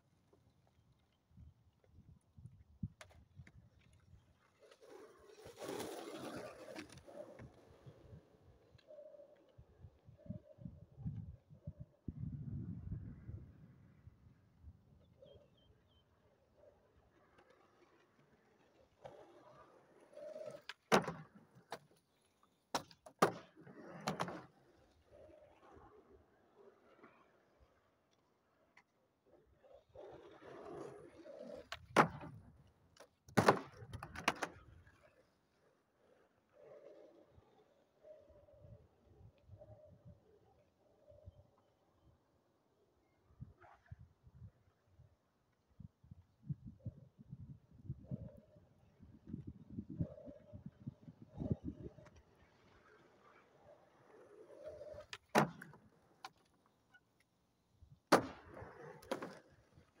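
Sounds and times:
skateboard wheels rolling on asphalt: 0:00.0 - 1:00.0
skateboard cracking: 0:03.0 - 0:08.1, 0:16.6 - 0:27.4, 0:28.5 - 0:35.2, 0:51.3 - 1:00.0
skateboard landing slap: 0:20.4 - 0:21.8, 0:22.7 - 0:24.5, 0:31.6 - 0:32.4, 0:33.3 - 0:34.6, 0:54.8 - 0:56.5, 0:58.1 - 0:59.5.

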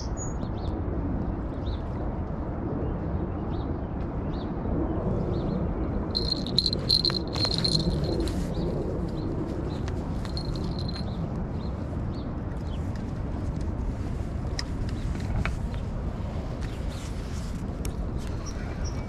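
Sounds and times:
outdoor background rumble: 0:00.0 - 0:19.0
high-pitched insect trill: 0:06.2 - 0:08.3, 0:10.2 - 0:11.0.

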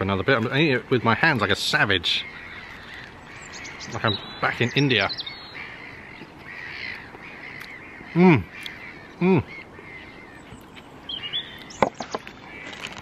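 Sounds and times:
faint birdsong: 0:00.0 - 0:13.0
man humming with mouth full: 0:09.2 - 0:09.5.

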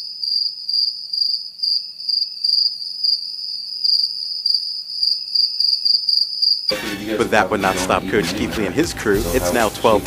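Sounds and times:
crickets chirping: 0:00.0 - 0:06.7.

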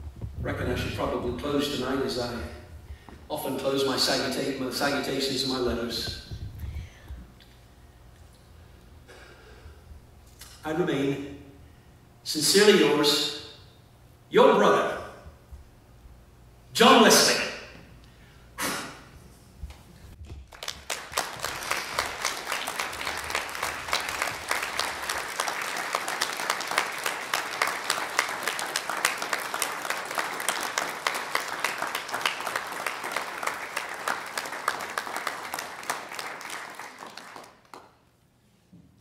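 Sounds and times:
audience applauding: 0:20.4 - 0:38.0.

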